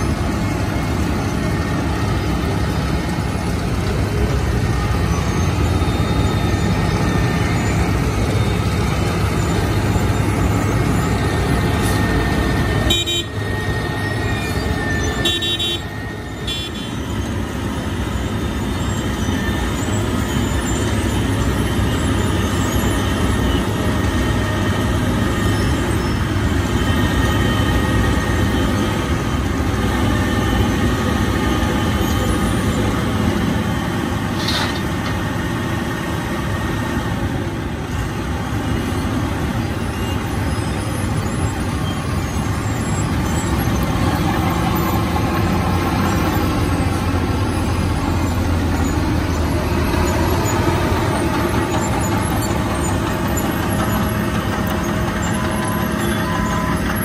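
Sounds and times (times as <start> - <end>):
milling machine diesel and grinding: 0.0 - 57.0.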